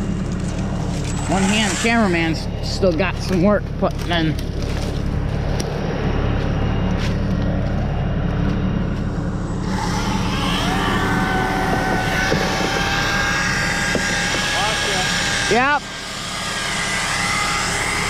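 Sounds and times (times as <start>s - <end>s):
chainsaw revving: 0.0s - 3.3s, 9.6s - 18.0s
small engine running low: 0.0s - 18.0s.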